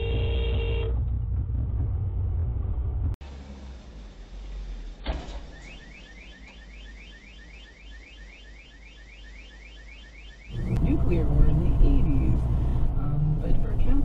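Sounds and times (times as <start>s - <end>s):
low engine hum: 0.0s - 5.5s, 10.5s - 14.0s
car alarm chirping: 5.4s - 11.2s.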